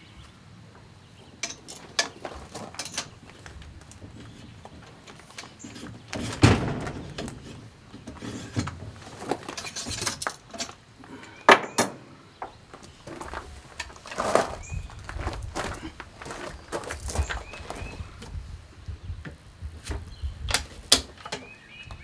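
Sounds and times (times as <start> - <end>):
objects knocking and clattering: 1.4 - 10.8.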